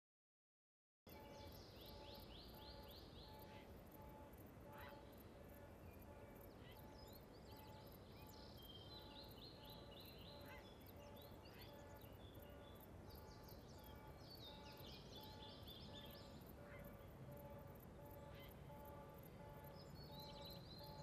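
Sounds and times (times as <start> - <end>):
faint birdsong chirps and trills: 1.1 - 21.0
outdoor background hiss: 1.1 - 21.0.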